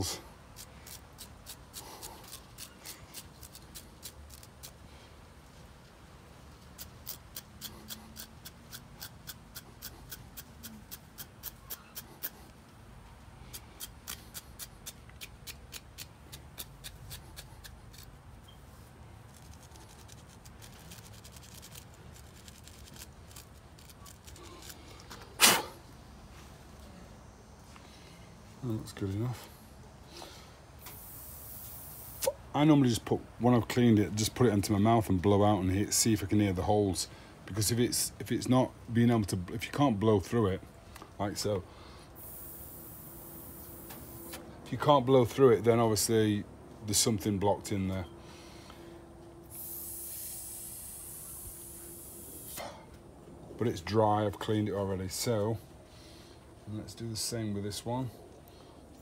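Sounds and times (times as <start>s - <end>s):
stiff brush scrubbing: 0.0s - 4.8s, 6.6s - 12.6s, 13.5s - 25.7s.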